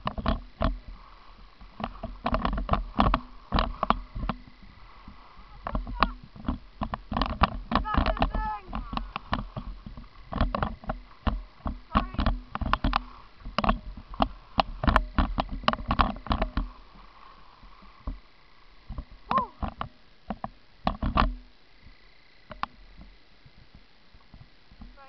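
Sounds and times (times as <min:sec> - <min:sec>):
skis scraping on hard snow: 0:00.0 - 0:19.3
wind rumble on microphone: 0:00.0 - 0:25.0.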